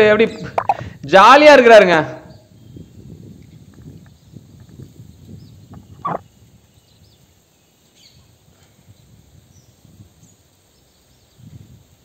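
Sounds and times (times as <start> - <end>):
distant bird chirps: 0.4 - 1.0, 4.1 - 7.2.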